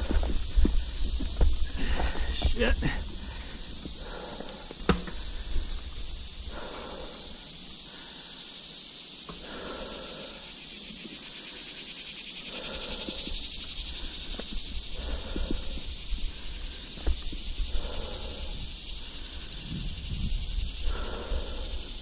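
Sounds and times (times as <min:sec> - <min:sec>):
bike tyre and wind rumble: 0:00.0 - 0:07.4, 0:12.5 - 0:22.0
insect chorus: 0:00.0 - 0:22.0.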